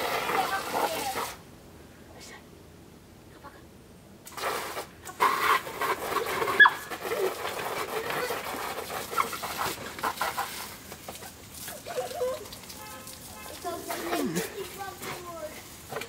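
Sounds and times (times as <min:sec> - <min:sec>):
hose spraying onto plastic sheet: 0:00.0 - 0:01.4, 0:04.2 - 0:16.0
dog whining and squeaking: 0:06.6 - 0:06.9.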